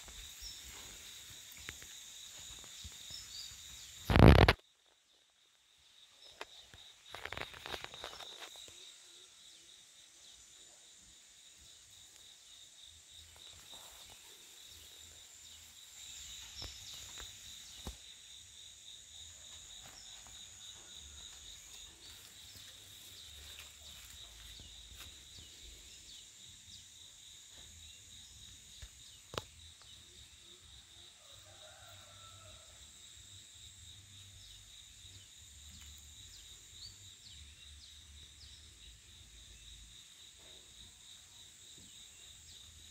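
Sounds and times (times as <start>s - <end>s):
insects trilling: 0.0s - 42.9s.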